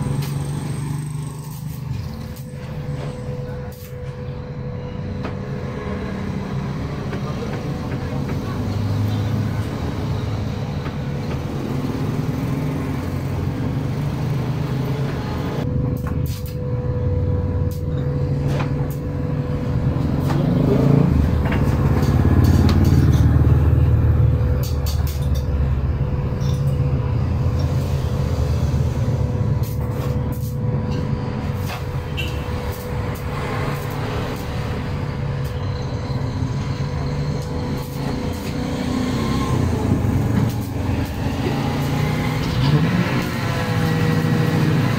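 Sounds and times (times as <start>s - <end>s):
road traffic rumble: 0.0s - 44.9s.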